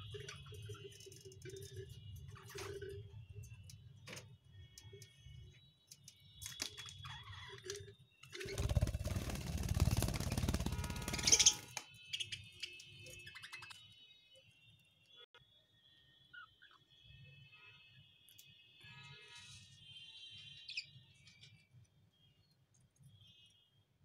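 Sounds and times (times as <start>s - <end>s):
wings fluttering: 8.4s - 11.9s
budgerigars chirping: 11.1s - 12.3s.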